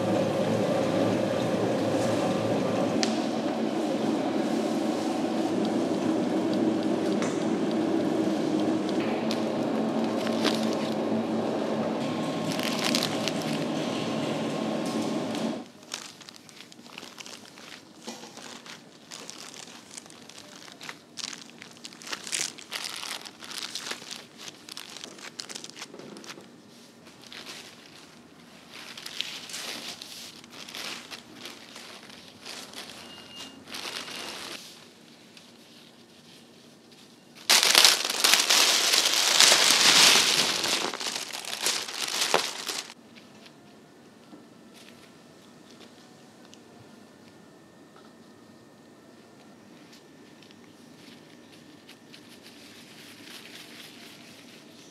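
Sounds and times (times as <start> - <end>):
plastic bags crinkling and rustling: 4.4 - 11.2, 12.0 - 14.0, 15.6 - 43.5, 49.8 - 54.9.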